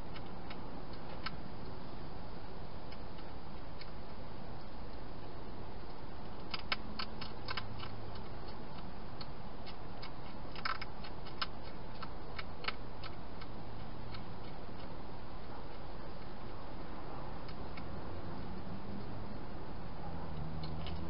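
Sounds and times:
hedgehog chewing dry food: 0.0 - 1.8, 2.8 - 16.8.

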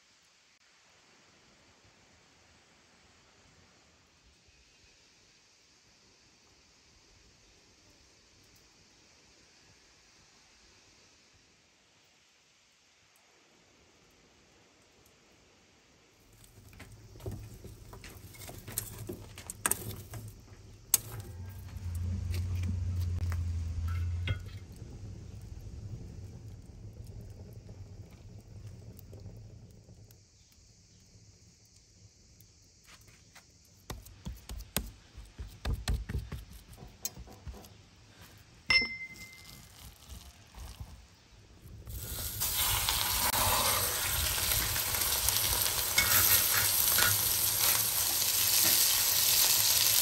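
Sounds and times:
wood fire crackling: 13.1 - 38.6, 39.2 - 50.0
hands patting minced meat: 33.9 - 36.8
metallic clink with high ring: 38.7 - 39.7.

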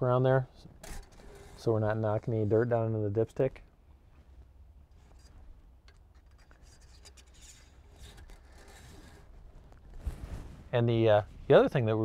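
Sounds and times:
cloth rag rubbing metal: 6.2 - 9.4.

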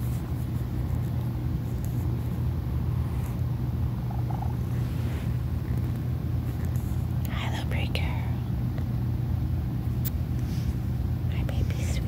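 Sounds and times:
cat purring: 2.9 - 7.1.

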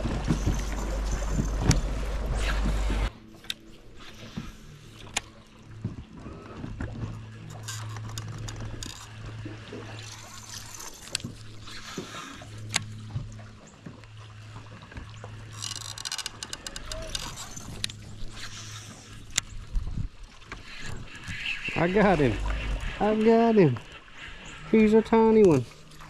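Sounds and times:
electric trolling motor humming: 0.0 - 26.0
fishing reel clicking: 7.5 - 9.2, 10.0 - 12.9, 15.5 - 19.5.

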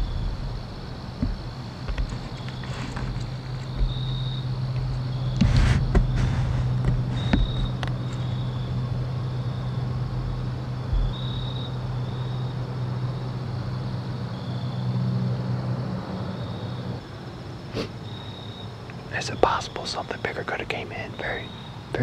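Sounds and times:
rustles and clicks: 0.0 - 8.6
low engine hum: 0.0 - 22.0.

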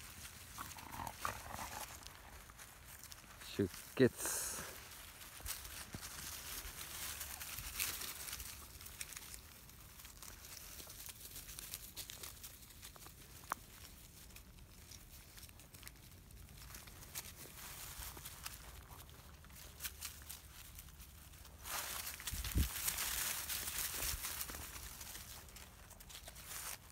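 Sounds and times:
puppies scrambling over dry leaves: 0.0 - 26.9.

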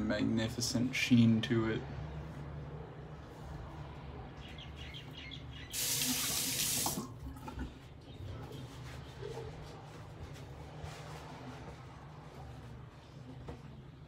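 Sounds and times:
sink tap running: 5.7 - 7.1.

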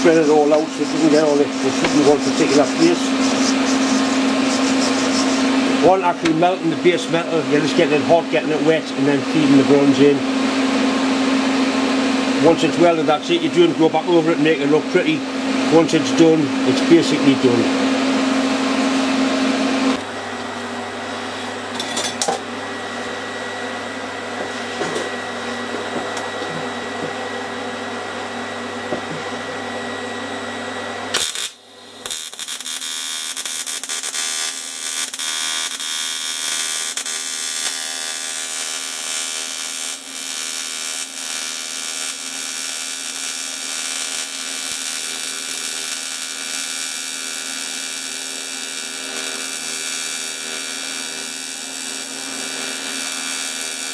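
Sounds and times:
welding arc hissing and buzzing: 0.0 - 6.0, 31.1 - 53.9
welding machine hum and fan: 0.0 - 53.9.

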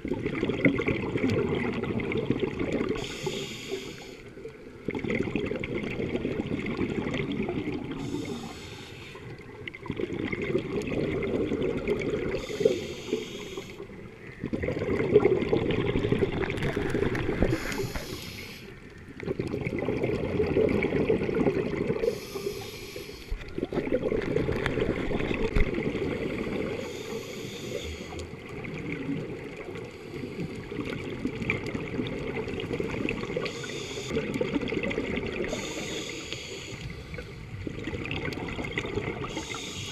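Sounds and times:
bubbling exhaled air: 0.0 - 39.9
hissing regulator inhale: 3.0 - 4.3, 8.0 - 9.4, 12.4 - 13.8, 17.4 - 18.8, 22.0 - 23.4, 26.2 - 28.2, 33.4 - 34.2, 35.4 - 37.4, 39.2 - 39.9.

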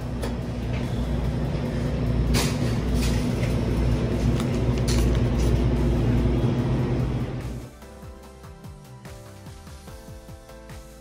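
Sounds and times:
low machine rumble: 0.0 - 7.7.

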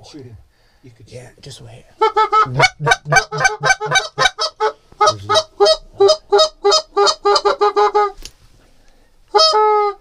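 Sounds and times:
goose call honks and clucks: 2.0 - 8.2, 9.3 - 10.0.

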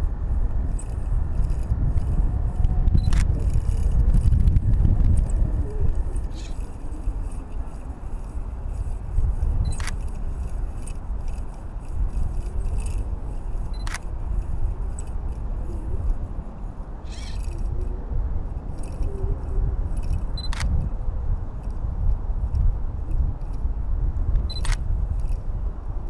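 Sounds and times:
wind buffeting microphone: 0.0 - 26.0
sharp click: 13.7 - 14.1, 20.1 - 20.8, 24.4 - 24.8.

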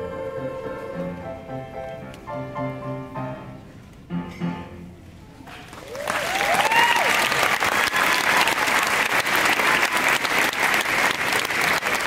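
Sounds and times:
audience applauding: 5.6 - 12.0
whoops: 5.8 - 8.9.

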